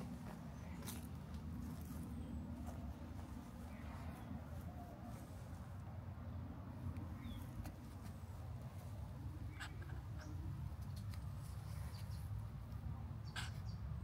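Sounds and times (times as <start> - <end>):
light ticks and rustles: 9.6 - 12.9.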